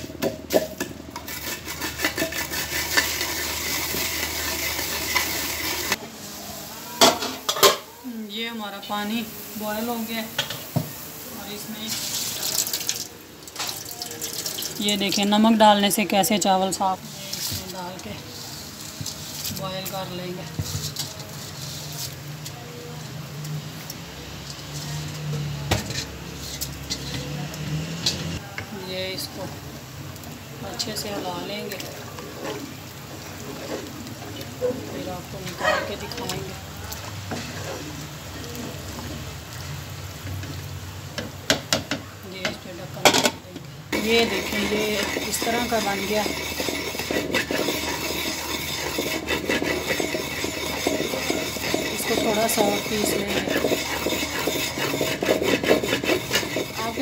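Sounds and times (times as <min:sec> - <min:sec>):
pestle grinding seeds: 0:00.8 - 0:06.0, 0:43.9 - 0:57.0
rice scraped from steel bowl: 0:01.2 - 0:06.0, 0:44.0 - 0:57.0.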